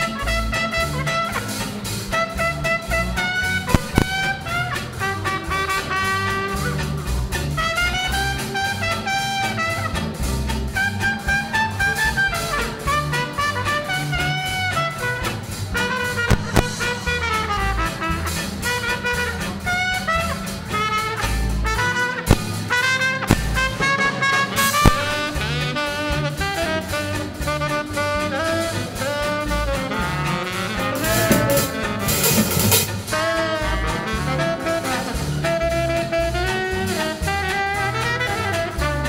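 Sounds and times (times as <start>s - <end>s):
swing jazz band playing: 0.0s - 39.0s
sharp drum accents: 1.3s - 8.8s, 13.8s - 36.2s.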